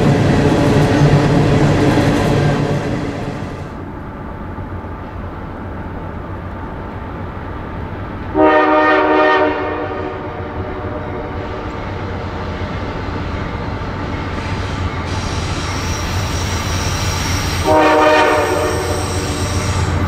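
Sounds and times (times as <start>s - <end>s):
train rumbling: 0.0s - 20.0s
locomotive air horn blast: 8.4s - 11.7s, 17.6s - 20.0s.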